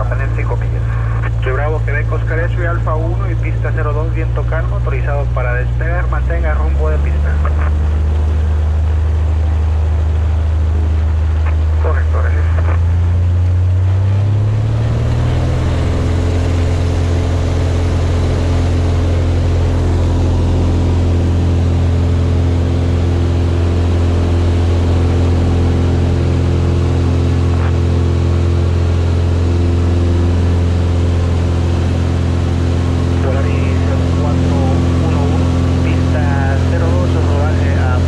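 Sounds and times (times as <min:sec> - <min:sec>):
propeller plane engine droning: 0:00.0 - 0:38.0.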